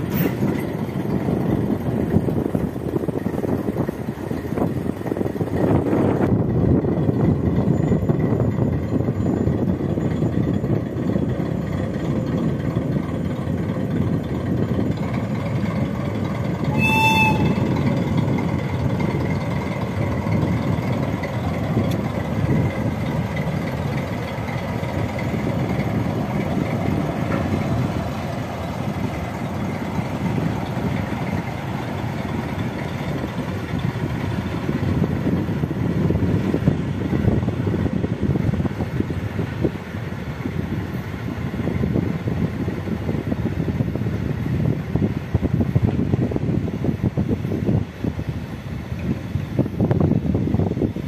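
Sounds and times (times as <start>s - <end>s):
train wheels rumbling on rails: 0.0s - 51.0s
train horn toot: 16.6s - 18.0s.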